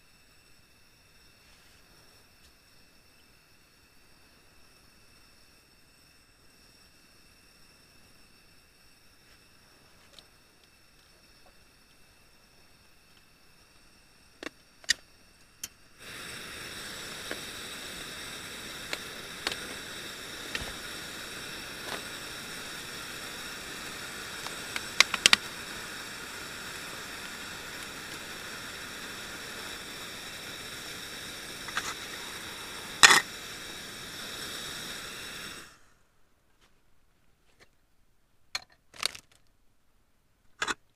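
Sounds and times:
gas burner hissing: 0:00.0 - 0:36.2
stove igniter clicks: 0:15.6 - 0:26.2, 0:31.5 - 0:33.4.

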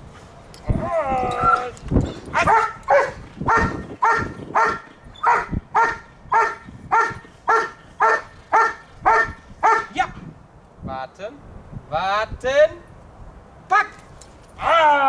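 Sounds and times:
dog barking: 0:02.4 - 0:10.0.

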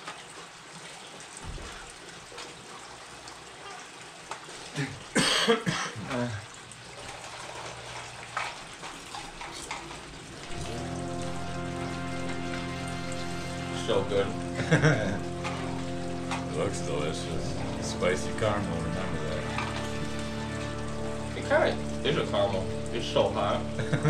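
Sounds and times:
man coughing: 0:04.8 - 0:06.4.

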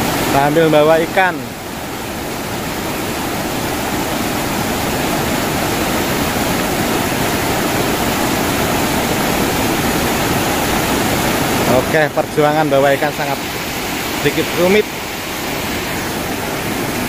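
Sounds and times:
river rushing: 0:00.0 - 0:17.0.

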